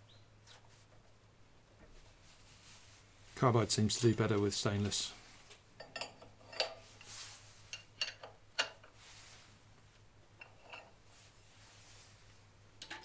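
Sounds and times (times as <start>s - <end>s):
metal wrenches clinking: 5.8s - 6.9s, 7.7s - 8.8s, 10.4s - 11.0s.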